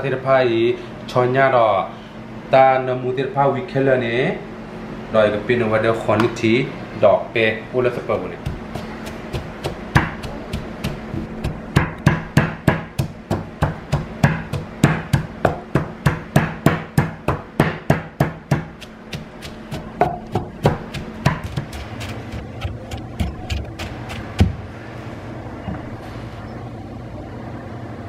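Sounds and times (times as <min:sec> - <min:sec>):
wooden pestle pounding in mortar: 0:08.1 - 0:24.6.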